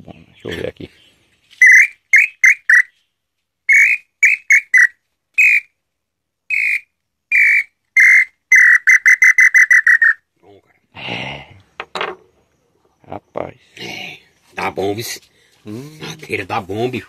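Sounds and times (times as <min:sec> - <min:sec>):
wooden bird-call whistle: 0:01.5 - 0:03.1, 0:03.7 - 0:05.8, 0:06.5 - 0:10.3.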